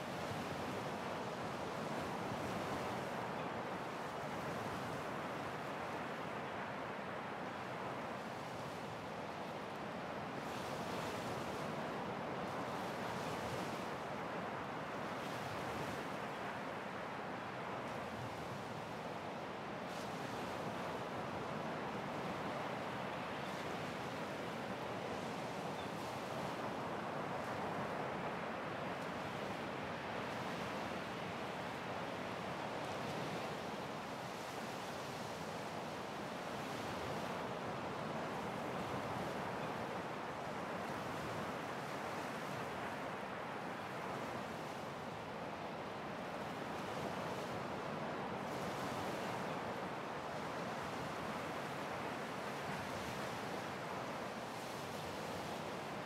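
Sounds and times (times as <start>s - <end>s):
ocean waves breaking on beach: 0.0s - 56.0s.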